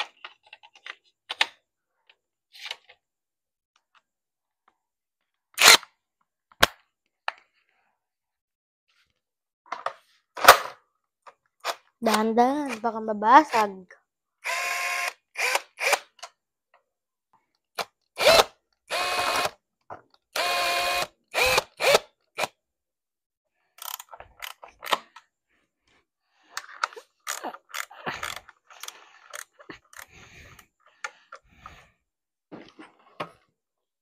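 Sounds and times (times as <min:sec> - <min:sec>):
parts clicking and rattling: 0:23.8 - 0:25.3, 0:26.5 - 0:31.4.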